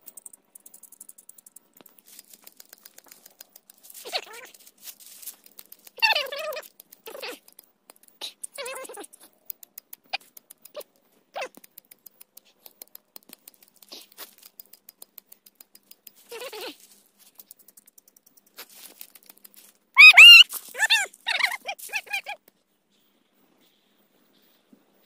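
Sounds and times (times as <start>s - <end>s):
dry leaves and twigs crackling: 1.7s - 7.7s, 15.7s - 22.4s
loud rising and falling calls: 20.0s - 20.4s
short animal calls: 20.0s - 22.4s.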